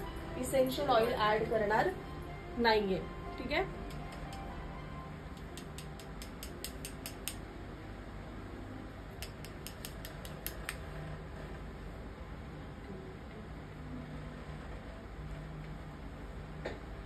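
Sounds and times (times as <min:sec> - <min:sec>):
low steady hum: 0:00.0 - 0:17.0
makeup tools clicking: 0:03.8 - 0:04.5, 0:05.4 - 0:07.4, 0:09.2 - 0:10.8.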